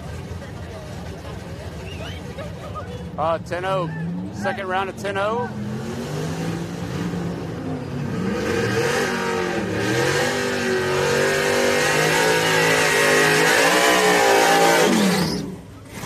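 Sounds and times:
truck engine revving: 0.0 - 16.0.

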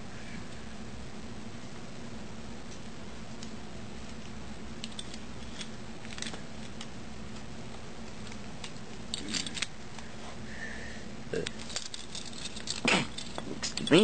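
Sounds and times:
low room hum: 0.0 - 14.0
plastic parts clicking: 8.2 - 9.7.

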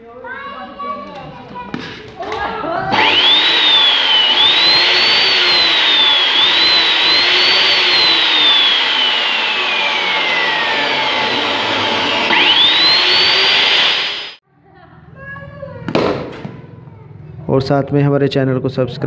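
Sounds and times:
cut-off saw motor whine: 2.9 - 14.4.

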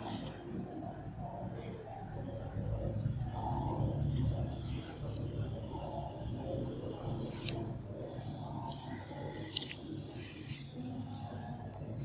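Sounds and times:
low background murmur: 0.0 - 12.0.

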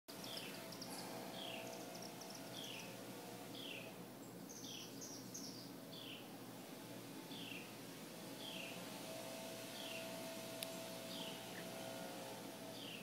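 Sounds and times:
birds chirping: 0.1 - 13.0
faint steady hum: 0.1 - 13.0.

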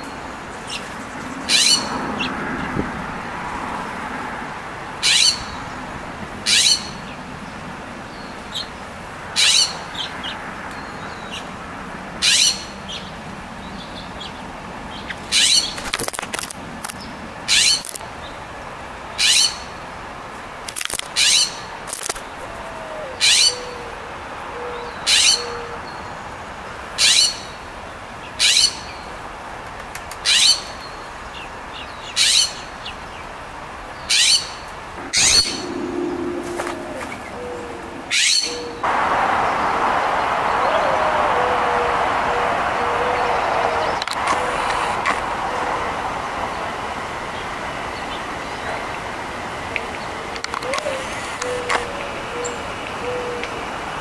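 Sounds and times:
songbird chip call: 35.0 - 46.7.

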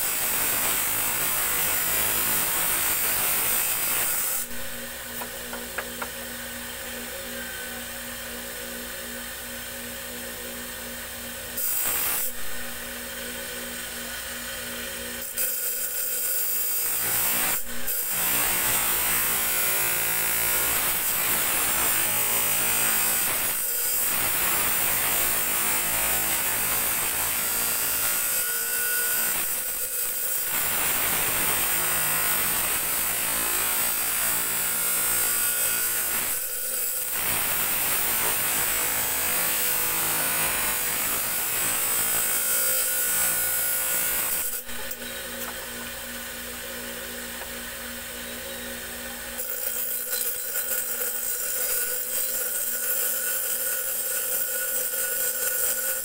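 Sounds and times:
steel blade grinding on wheel: 49.4 - 56.0.

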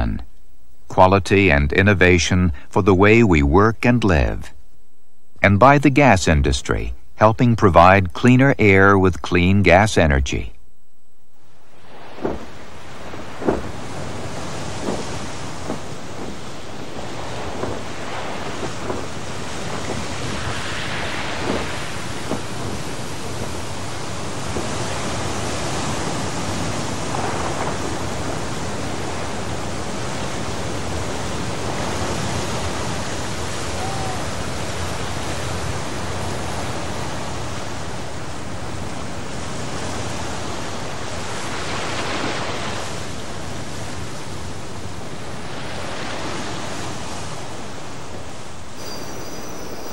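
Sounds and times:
sea waves on rocky shore: 11.7 - 49.9.

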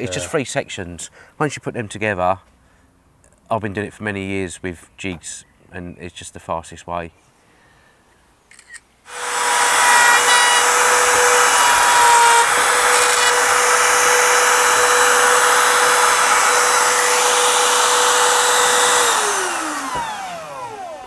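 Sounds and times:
router whining: 8.5 - 21.0.

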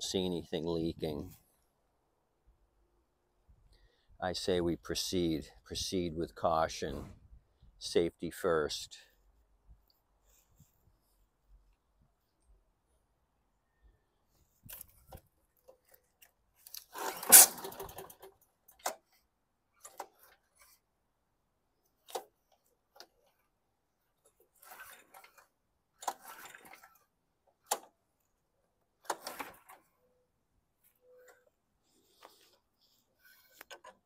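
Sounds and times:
mower pull-starter clicks and rattles: 14.6 - 19.2, 19.8 - 20.7, 22.0 - 23.5, 24.2 - 28.2, 28.8 - 30.1.

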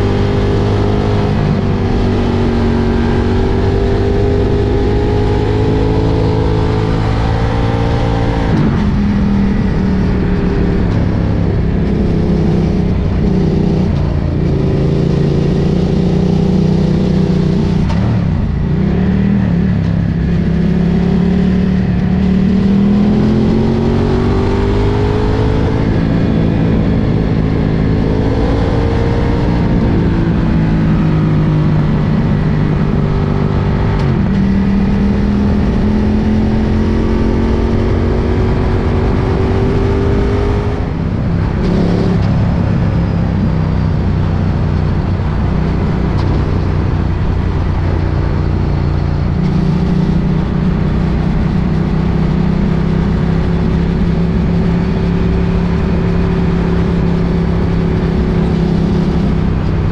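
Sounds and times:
motorcycle engine revving: 0.0 - 59.9
steady rush of noise: 0.0 - 59.9.

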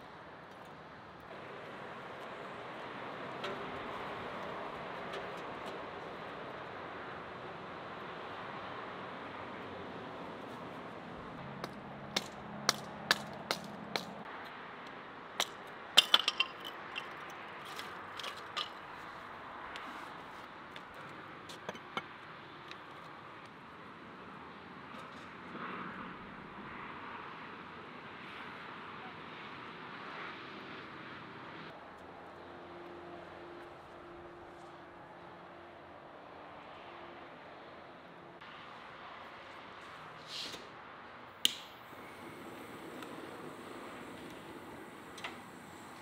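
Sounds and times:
hatchet chopping kindling: 11.6 - 14.2.

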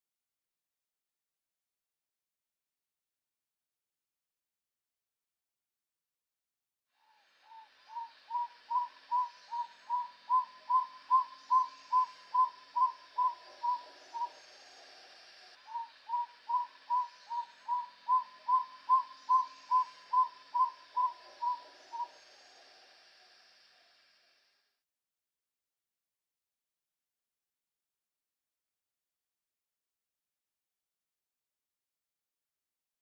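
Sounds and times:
bird whistling notes: 7.5 - 14.4, 15.7 - 22.1.

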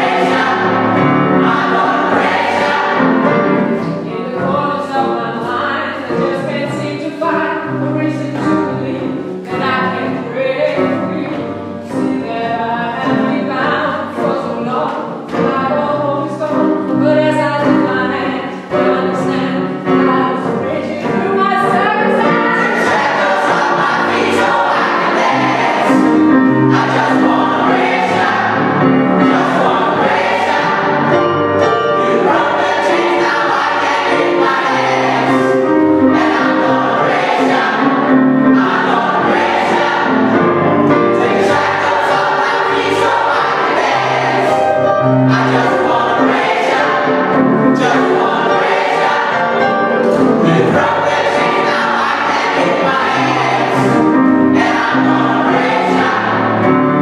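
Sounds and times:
gospel choir singing: 0.0 - 5.4, 18.6 - 57.0.

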